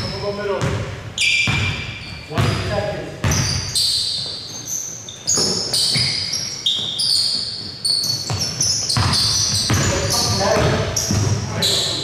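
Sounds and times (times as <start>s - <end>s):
shoes squeaking on court: 0.0s - 12.0s
basketball bouncing on hardwood: 0.6s - 0.9s, 1.5s - 3.7s, 8.0s - 11.5s.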